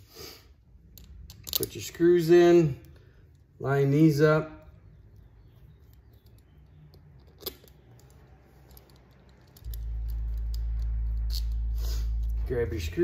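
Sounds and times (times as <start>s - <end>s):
steady low hum: 0.0s - 13.0s
small metal screw clicks: 0.9s - 1.8s, 5.8s - 12.4s.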